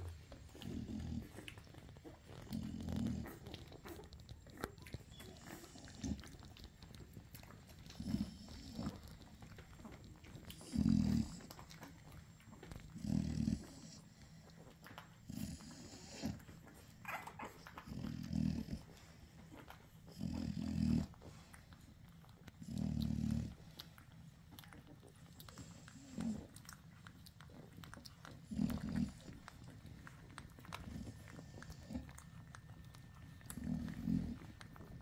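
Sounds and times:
wet suckling clicks: 15.9 - 35.0.

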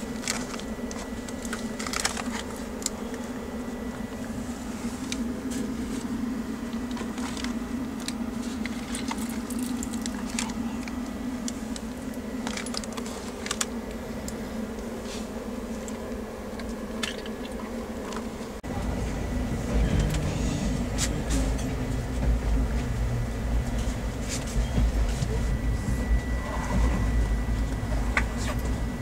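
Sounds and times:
train running hum: 0.0 - 29.0
deep train rumble: 18.5 - 29.0.

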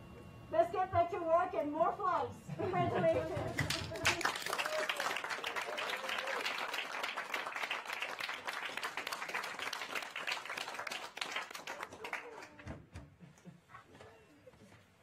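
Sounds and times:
people applauding: 3.5 - 13.0.

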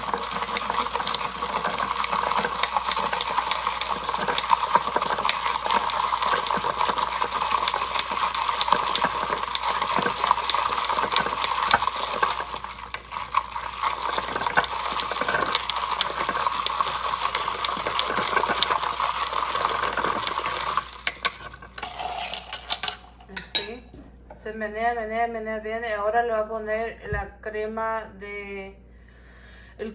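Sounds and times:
spoon stirring in glass jar: 0.0 - 23.8.

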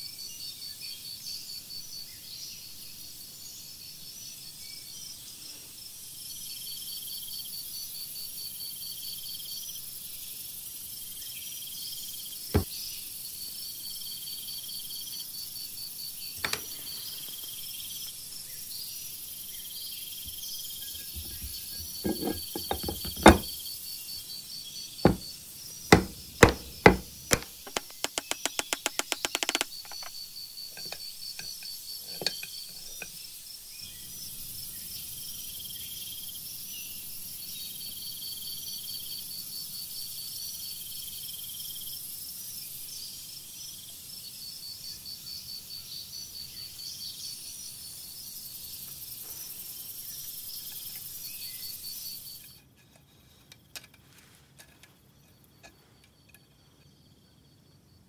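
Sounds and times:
insect-like chirping: 6.2 - 36.7, 41.1 - 53.8
metal knocks and clicks: 16.4 - 16.7, 20.9 - 23.6, 25.1 - 25.3, 25.9 - 30.1.

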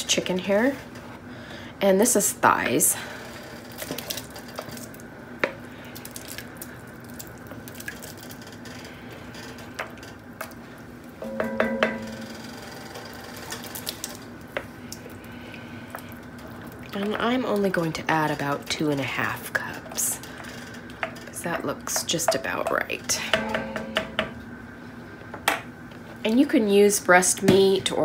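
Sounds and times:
ringing clink: 11.2 - 12.5.

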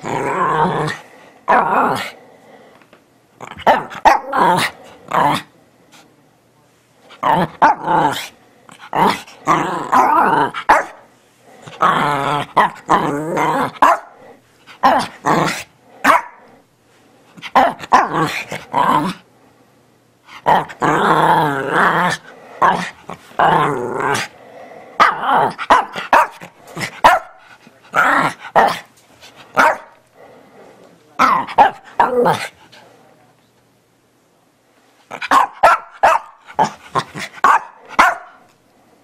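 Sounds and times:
dog growly barks and yowls: 0.0 - 2.4, 3.4 - 5.5, 7.1 - 16.7, 17.4 - 19.3, 20.3 - 32.7, 35.1 - 38.5.

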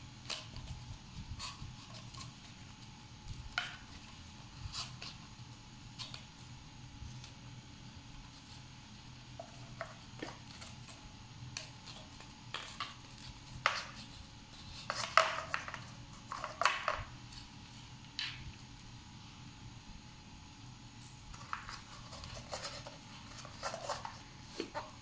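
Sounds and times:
paper cup rustling: 11.6 - 17.5, 21.3 - 25.0.

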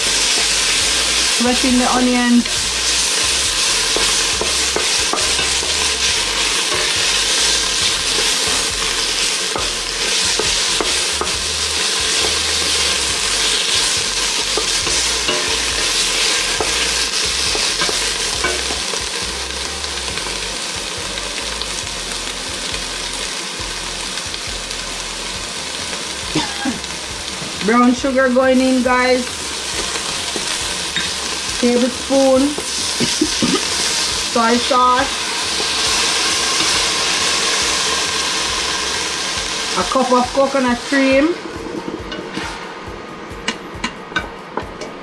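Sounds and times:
onions sizzling in a pot: 0.0 - 45.0
wooden spatula scraping a pot: 41.4 - 42.6.

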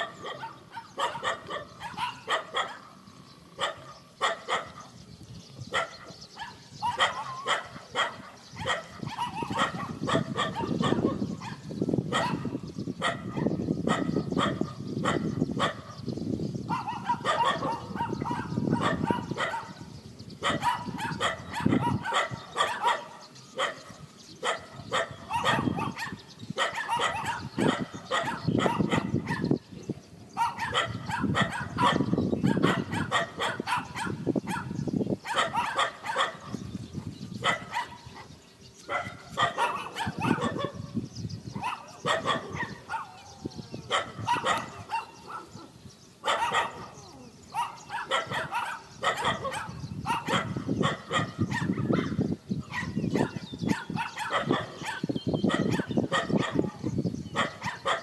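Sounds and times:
dogs barking: 0.0 - 5.0, 5.6 - 29.7, 30.3 - 58.0.

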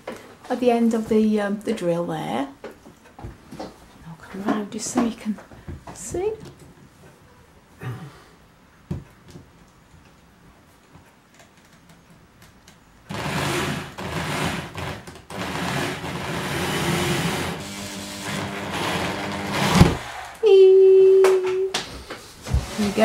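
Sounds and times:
electric drill whirring: 13.1 - 20.3.

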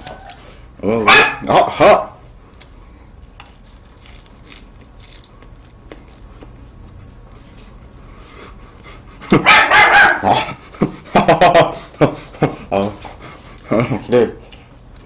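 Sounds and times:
chewing flaky pastry: 0.0 - 0.8, 1.4 - 9.5, 10.1 - 15.0
dog barking: 1.0 - 2.1, 9.4 - 10.5.

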